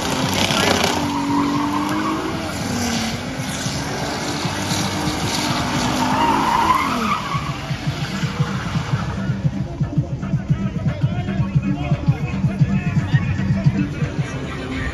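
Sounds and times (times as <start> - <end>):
car engine revving: 0.0 - 14.9
tyres squealing on asphalt: 0.0 - 14.9.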